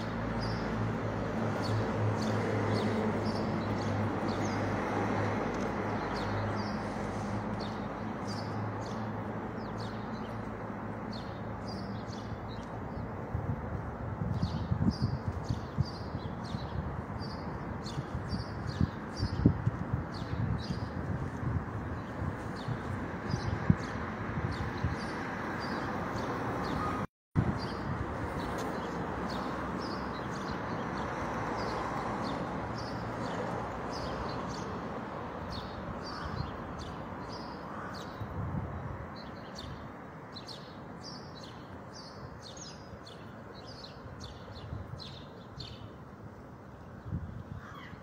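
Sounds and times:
street traffic hum: 0.0 - 48.0
small birds chirping: 35.4 - 46.0.

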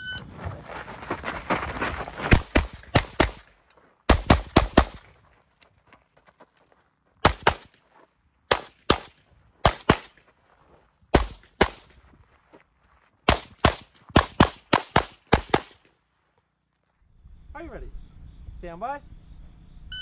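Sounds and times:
rapid pistol shots: 2.4 - 5.1, 7.2 - 7.8, 8.5 - 10.2, 11.1 - 11.9, 13.2 - 15.9.

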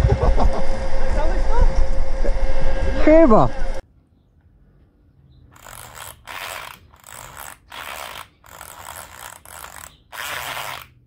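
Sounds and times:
goggle film ratcheting rasp: 5.6 - 11.0.

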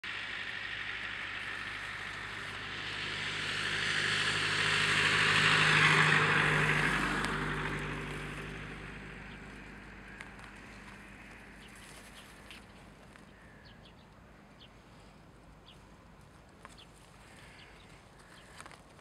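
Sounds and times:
vehicle engine passing: 0.0 - 14.0.

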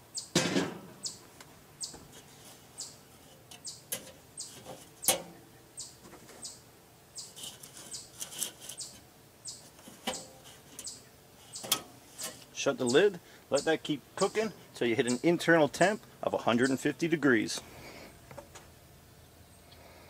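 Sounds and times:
small birds chirping: 0.0 - 0.4, 1.0 - 16.9
metal grill grate clinks: 3.4 - 5.4, 9.8 - 11.0, 11.6 - 12.5.

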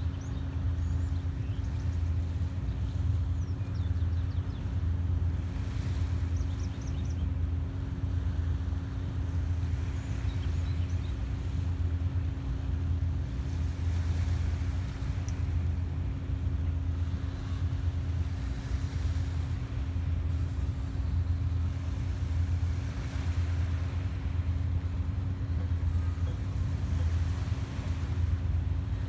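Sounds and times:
tugboat engine drone: 0.0 - 29.0
faint bird chirps: 6.0 - 7.4.

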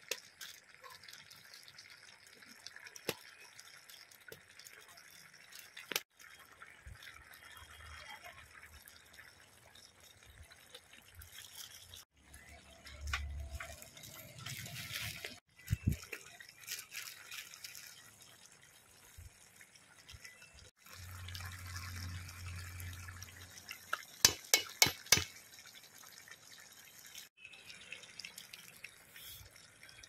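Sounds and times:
spatula scraping and knocking pot: 24.2 - 25.3.

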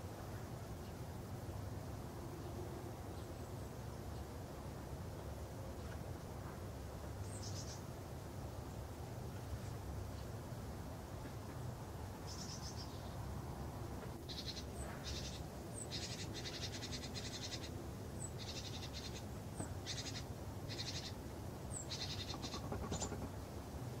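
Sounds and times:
songbird trilling: 14.3 - 23.3.

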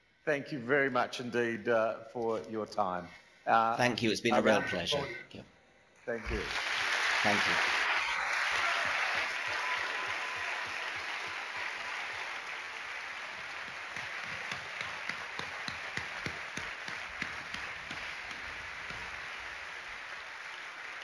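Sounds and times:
crowd applauding: 6.2 - 21.0
sharp claps close to microphone: 6.4 - 19.4.

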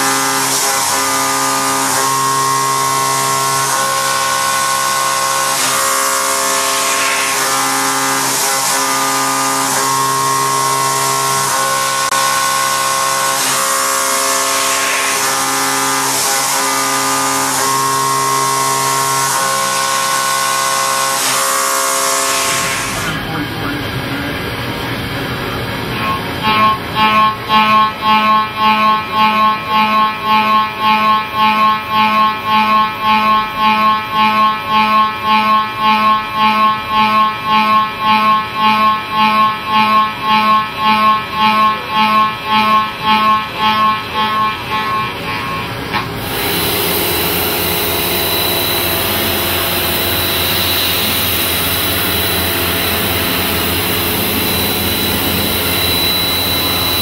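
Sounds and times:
milling cutter cutting steel: 0.0 - 23.7, 25.9 - 57.0
thin high whine: 0.0 - 57.0.

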